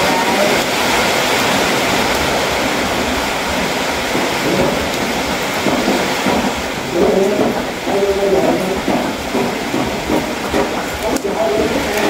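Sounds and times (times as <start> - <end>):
person's voice: 0.0 - 0.7, 6.9 - 9.0, 11.0 - 12.0
loud steady hiss: 0.0 - 12.0.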